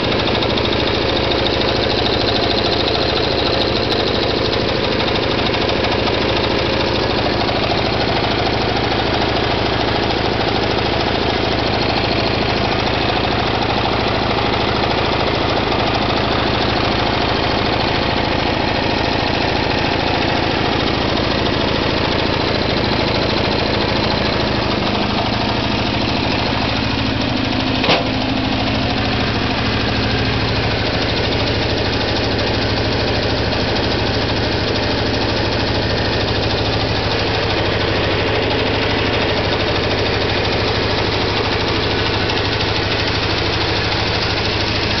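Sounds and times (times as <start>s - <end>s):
small petrol engine idling: 0.0s - 45.0s
sharp click: 27.8s - 28.2s.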